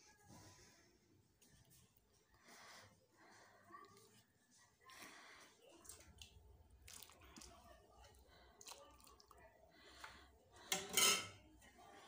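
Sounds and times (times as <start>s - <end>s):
syrup dripping and splashing: 5.9s - 7.6s.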